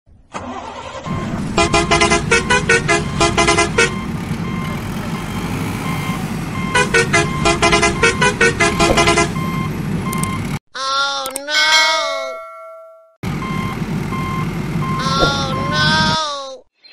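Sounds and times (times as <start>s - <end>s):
rapid horn toots: 1.2s - 4.1s, 5.8s - 9.6s
short beeps: 15.0s - 15.9s.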